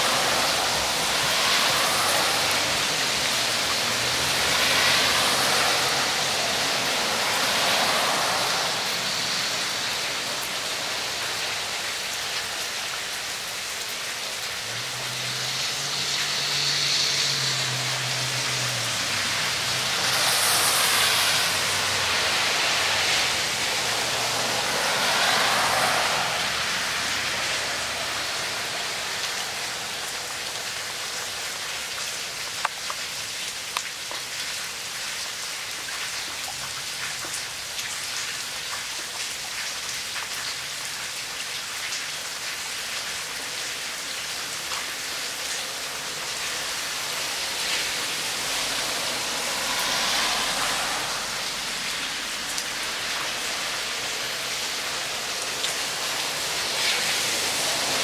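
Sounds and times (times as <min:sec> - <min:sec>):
rain pattering on rocks and leaves: 0:00.0 - 0:58.0
running water: 0:00.0 - 0:58.0.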